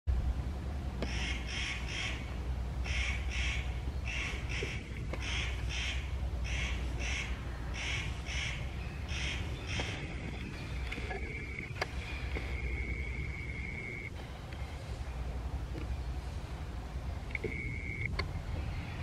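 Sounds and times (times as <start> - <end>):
steady low hum: 0.1 - 19.0
bird giving harsh calls: 1.0 - 14.1.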